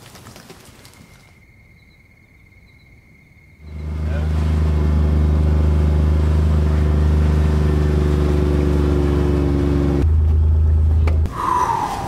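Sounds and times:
vehicle engine running: 3.6s - 11.3s.

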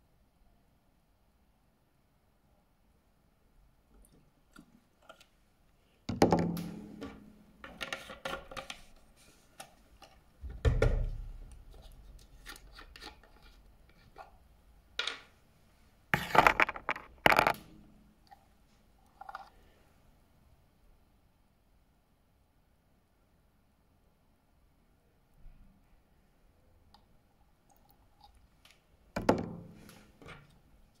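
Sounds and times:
small objects handled on a tabletop: 16.2s - 18.4s.

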